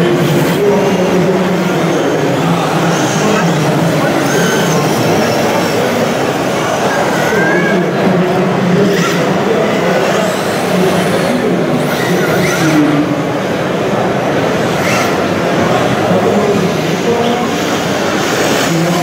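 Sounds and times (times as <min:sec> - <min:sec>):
loud hall background: 0:00.0 - 0:19.0.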